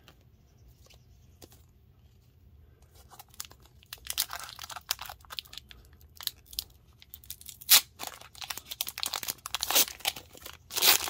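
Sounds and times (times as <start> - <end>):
plastic wrapper crinkling: 3.1 - 11.0.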